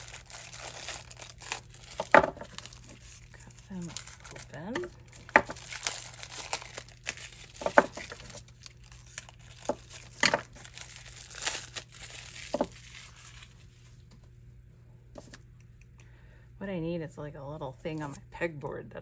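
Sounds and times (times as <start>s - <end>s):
plastic wrap crinkling and tearing: 0.0s - 14.1s.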